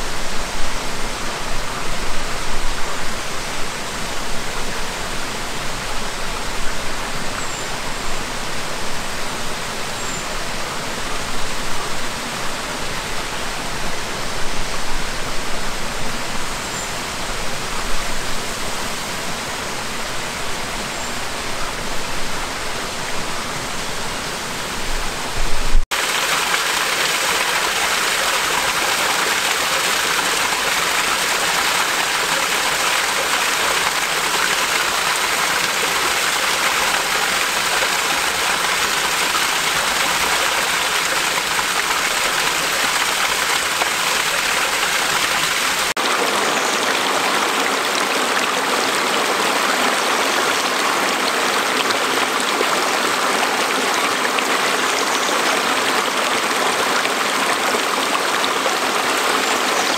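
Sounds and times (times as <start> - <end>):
stream cascade rushing: 0.0 - 59.9
waterfall pouring onto rock: 25.9 - 46.2.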